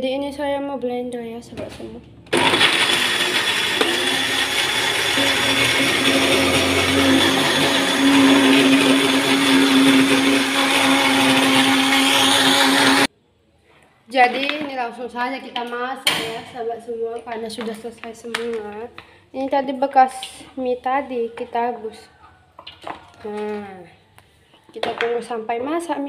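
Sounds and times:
electric blender running: 2.3 - 13.1.

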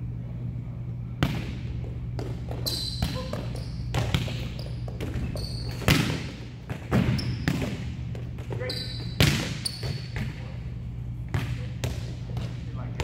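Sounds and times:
steady low hum: 0.0 - 13.0
volleyballs struck and bouncing: 1.2 - 10.5, 11.2 - 13.0
sneaker squeaks: 2.2 - 10.5.

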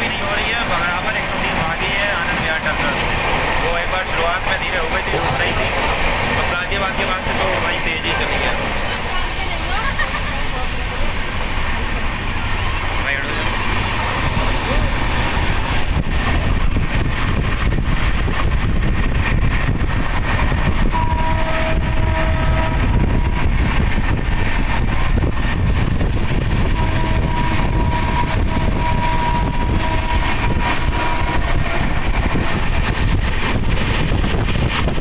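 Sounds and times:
train wheels rumbling on rails: 0.0 - 35.0
train horn: 20.9 - 23.5, 26.6 - 31.8.

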